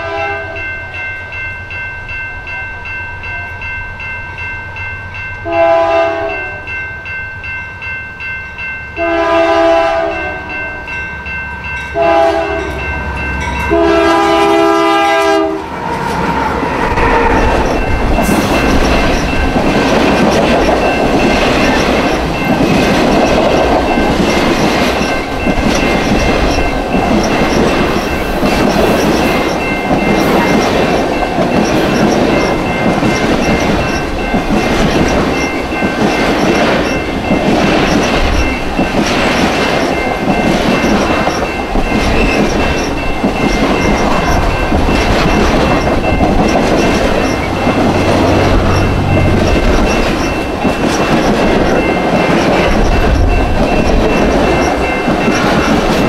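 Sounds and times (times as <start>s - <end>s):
locomotive air horn: 0.0s - 0.6s, 5.5s - 6.6s, 9.0s - 10.5s, 12.0s - 12.8s, 13.7s - 15.7s
crossing warning bell: 0.0s - 56.0s
train rumbling on rails: 0.0s - 56.0s.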